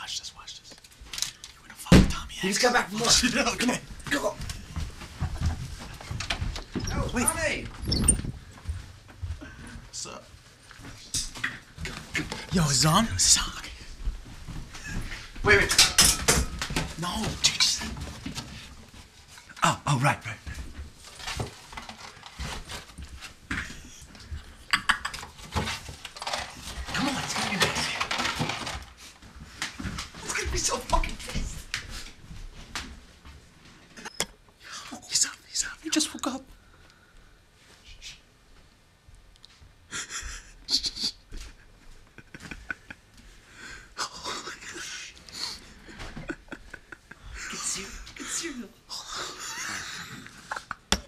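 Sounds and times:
person stifling laughter: 39.9s - 43.1s, 45.8s - 47.9s.

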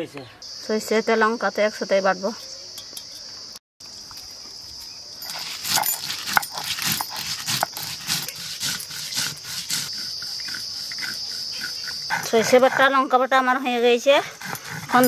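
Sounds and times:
insects buzzing: 0.0s - 15.0s
stone rubbing on stone slab: 5.2s - 12.3s.

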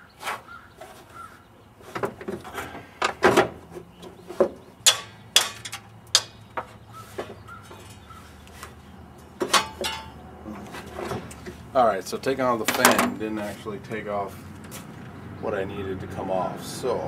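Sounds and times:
hand tools clanking on metal: 1.9s - 11.6s, 12.6s - 13.2s.

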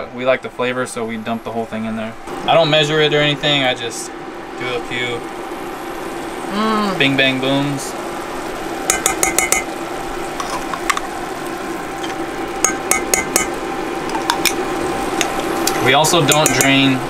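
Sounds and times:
low hum: 2.0s - 8.9s.

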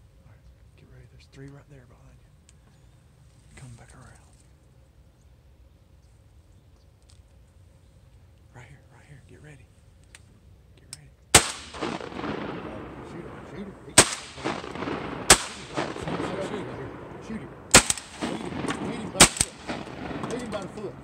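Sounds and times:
shotgun blasts echoing: 11.4s - 21.0s.

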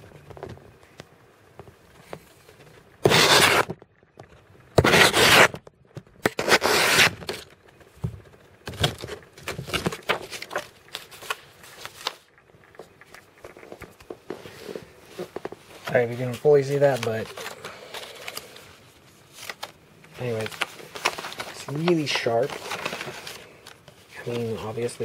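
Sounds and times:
knife slicing paper: 3.0s - 3.7s, 4.8s - 5.5s, 6.4s - 7.2s
paper rustling: 8.7s - 25.0s.

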